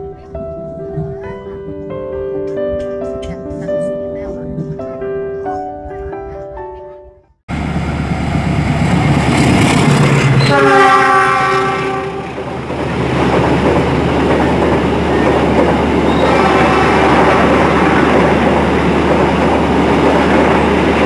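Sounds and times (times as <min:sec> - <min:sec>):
diesel locomotive engine hum: 0:07.5 - 0:21.0
train coaches clattering over rails: 0:08.3 - 0:21.0
locomotive horn: 0:10.4 - 0:12.5, 0:16.0 - 0:18.4.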